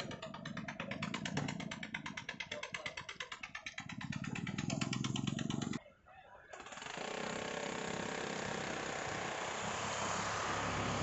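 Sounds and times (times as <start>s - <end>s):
boat engine chugging: 0.0s - 5.8s.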